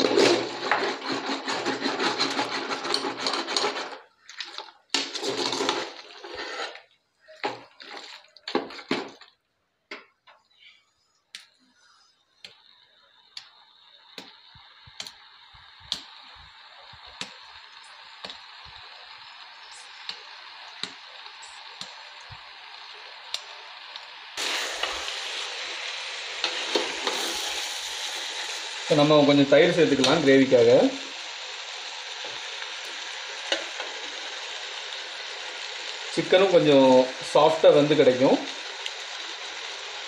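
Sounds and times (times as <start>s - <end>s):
ladle stirring food in a pot: 0.0s - 9.3s
pot sizzling with pops: 0.0s - 10.7s, 12.4s - 40.0s.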